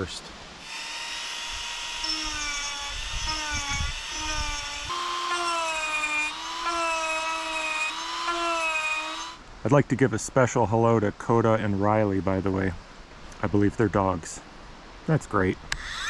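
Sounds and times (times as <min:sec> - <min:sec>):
rotary tool whining: 0:00.6 - 0:09.4, 0:15.7 - 0:16.0.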